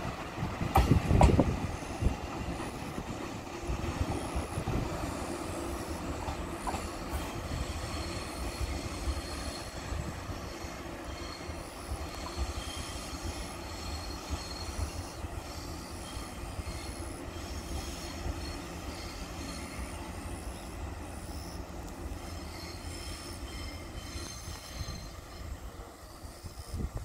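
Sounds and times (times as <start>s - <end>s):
train wheels rumbling on rails: 0.0s - 27.0s
high wheel squeals: 4.0s - 27.0s.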